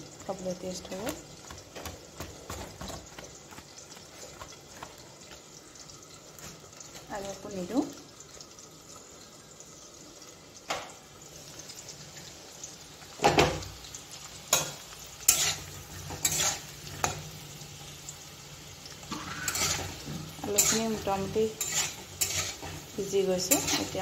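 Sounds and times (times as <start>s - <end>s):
potatoes sizzling in oil: 0.0s - 24.0s
metal spatula scraping pan: 14.5s - 17.2s, 19.1s - 24.0s.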